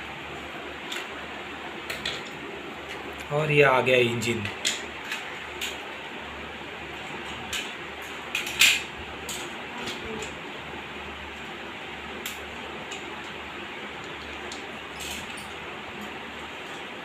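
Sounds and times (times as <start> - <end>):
plastic toy train clattering: 4.4 - 5.8, 7.2 - 10.4.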